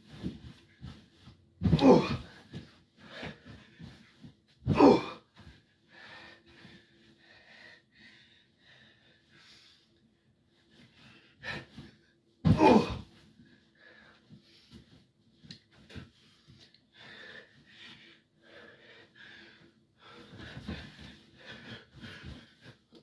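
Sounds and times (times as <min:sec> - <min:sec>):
body thudding onto mattresses: 0:00.0 - 0:05.6, 0:11.6 - 0:13.2
person breathing: 0:05.4 - 0:09.9, 0:16.2 - 0:22.9.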